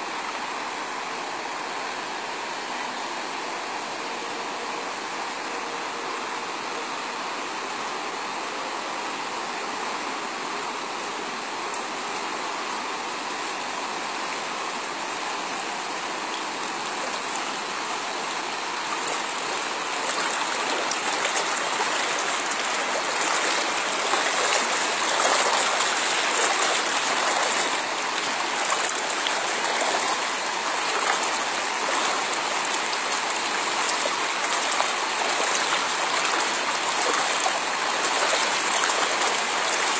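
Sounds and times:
floodwater rushing: 10.8 - 39.9.

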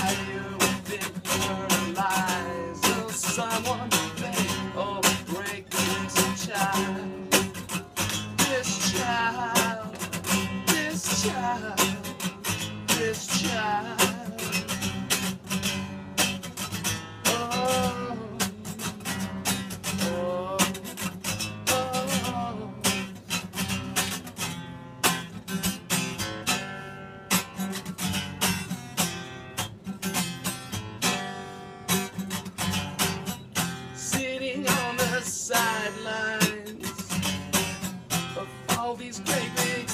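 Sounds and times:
man singing: 0.0 - 15.3, 17.2 - 23.2, 34.0 - 39.9
acoustic guitar strumming: 0.0 - 39.9.

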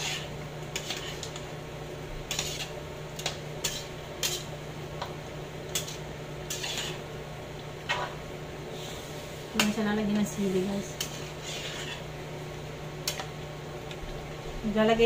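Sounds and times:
steady low hum: 0.0 - 15.0
spoon scraping and knocking pot: 2.3 - 4.5, 5.7 - 7.0.

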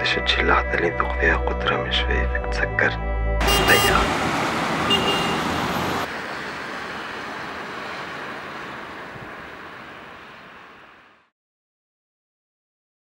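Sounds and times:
road traffic hiss: 3.4 - 11.3.

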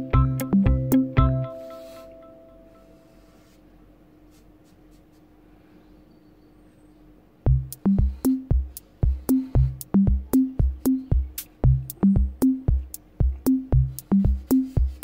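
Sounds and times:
electronic drum beat: 0.0 - 1.5, 7.5 - 15.0
bass note: 7.5 - 8.2, 9.4 - 10.8, 11.6 - 14.5
marker scratching on paper: 14.0 - 15.0.

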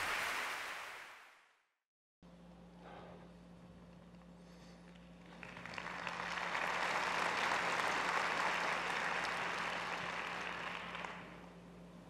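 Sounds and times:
audience applauding: 0.0 - 1.2, 5.3 - 11.4.

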